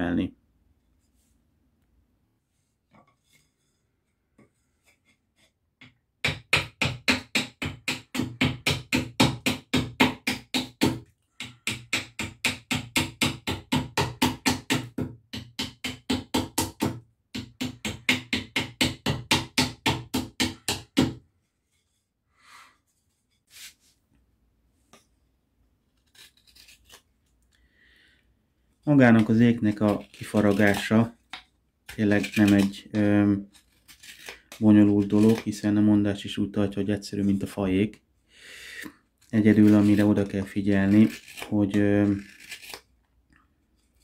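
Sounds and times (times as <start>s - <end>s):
hatchet chopping wood: 6.2s - 21.2s.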